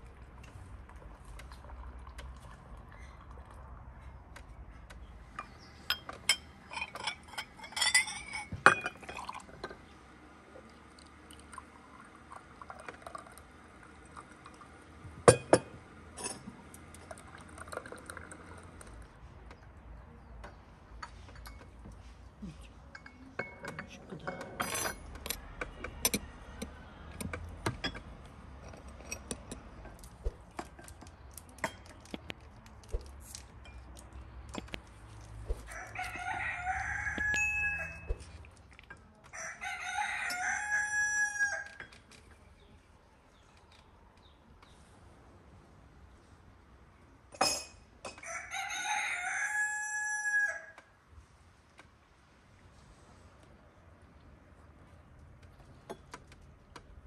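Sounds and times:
glasses and spoons clinking: 0:05.4 - 0:09.8, 0:15.3 - 0:16.5, 0:21.0 - 0:21.9, 0:22.9 - 0:25.4, 0:30.6 - 0:32.2, 0:33.4 - 0:35.2, 0:36.7 - 0:39.0, 0:47.3 - 0:48.2
tea pouring into glass: 0:09.0 - 0:09.6, 0:10.6 - 0:14.9, 0:16.9 - 0:19.0.

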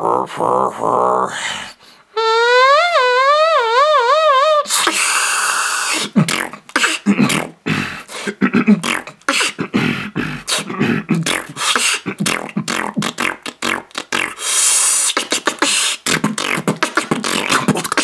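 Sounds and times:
beatboxing hiss: 0:04.6 - 0:18.0
beatboxing bass percussion: 0:06.0 - 0:07.6, 0:08.5 - 0:18.0.

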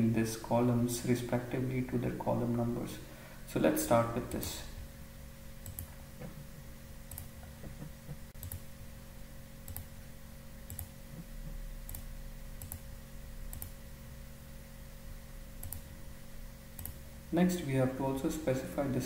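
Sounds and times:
faint electrical hum: 0:00.0 - 0:19.0
computer mouse clicking: 0:05.6 - 0:05.9, 0:07.1 - 0:08.6, 0:09.6 - 0:09.9, 0:10.6 - 0:12.9, 0:13.5 - 0:13.8, 0:15.6 - 0:15.9, 0:16.8 - 0:17.0.

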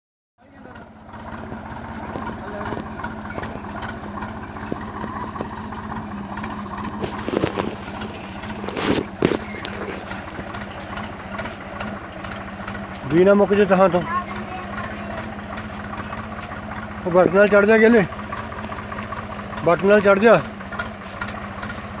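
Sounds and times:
tractor engine running: 0:00.4 - 0:22.0
knocks and clatters: 0:00.8 - 0:17.1.

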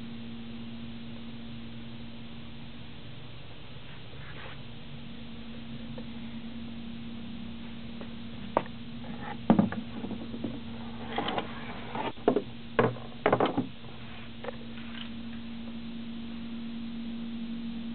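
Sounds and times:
steady low hum: 0:00.0 - 0:17.9.

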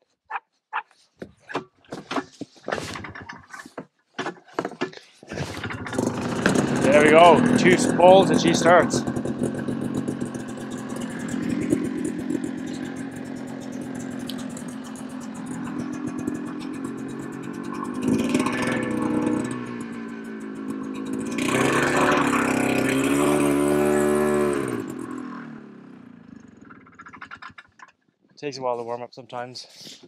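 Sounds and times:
snowmobile engine idling and revving: 0:05.3 - 0:27.9.

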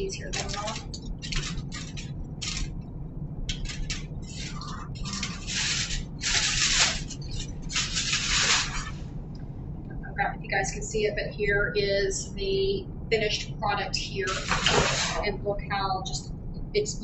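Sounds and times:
aluminium foil crinkling: 0:03.5 - 0:09.0.

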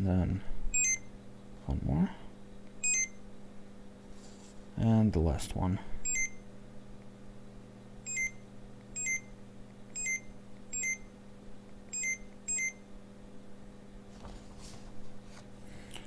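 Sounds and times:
barcode scanner beeps: 0:00.8 - 0:01.1, 0:02.8 - 0:03.2, 0:06.1 - 0:06.4, 0:08.1 - 0:08.4, 0:09.0 - 0:09.3, 0:10.0 - 0:11.1, 0:12.0 - 0:12.8.

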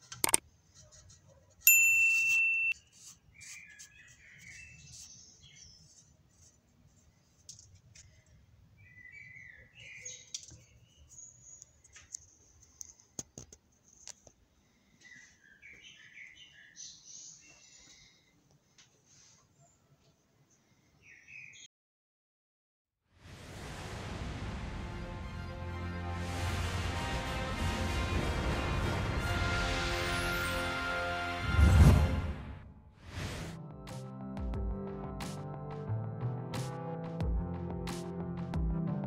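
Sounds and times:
sharp click: 0:00.1 - 0:00.4
faint bird chirps: 0:19.4 - 0:21.7.

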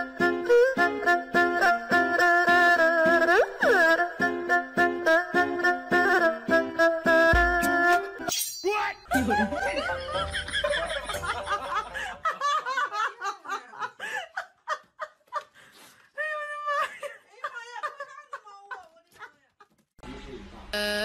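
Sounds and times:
people laughing: 0:09.1 - 0:15.5, 0:16.4 - 0:19.5.

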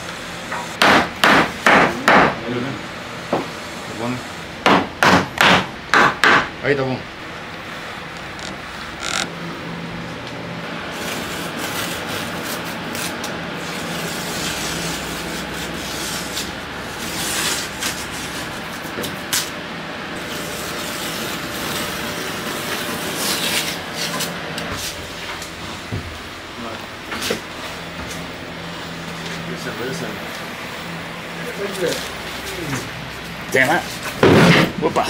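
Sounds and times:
wood scraping and rubbing: 0:08.2 - 0:09.3.

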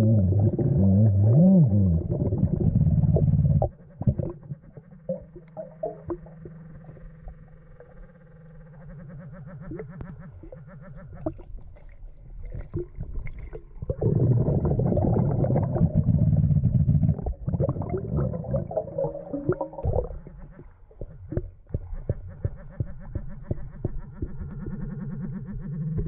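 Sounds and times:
underwater air bubbles: 0:00.0 - 0:08.1, 0:08.8 - 0:26.0.

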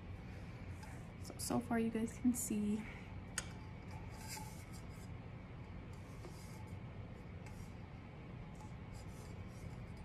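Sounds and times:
low background hum: 0:00.0 - 0:10.0
soft rubbing strokes: 0:03.6 - 0:10.0.

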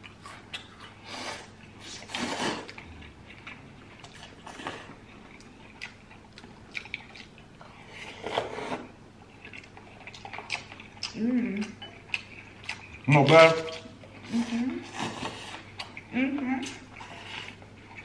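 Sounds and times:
chewing: 0:00.0 - 0:18.0
slurping noodles: 0:01.0 - 0:02.8.

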